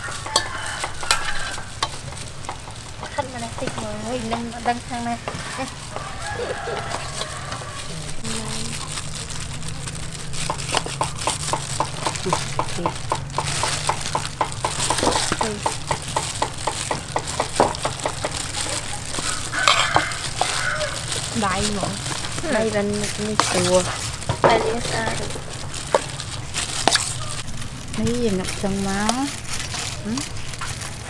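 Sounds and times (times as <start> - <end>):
spoons scraping metal bowl: 0.0 - 8.9, 18.2 - 27.4
soft voices: 3.0 - 8.9.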